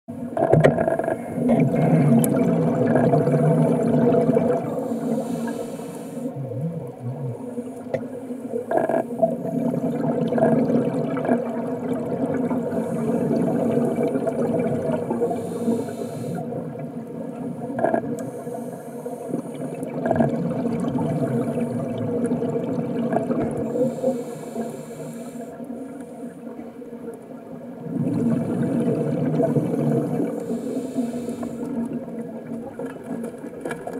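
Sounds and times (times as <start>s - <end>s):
exhaled bubbles rushing: 0.4s - 5.3s, 6.3s - 15.6s, 19.4s - 24.0s, 27.8s - 30.4s
diver breathing through regulator: 4.7s - 6.4s, 12.7s - 13.6s, 15.2s - 16.6s, 23.6s - 26.4s, 29.5s - 31.8s.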